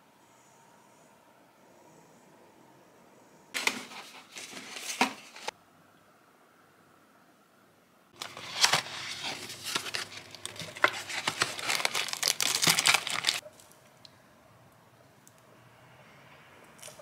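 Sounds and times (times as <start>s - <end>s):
packaging crinkling and rustling: 3.6s - 5.5s, 8.2s - 13.4s.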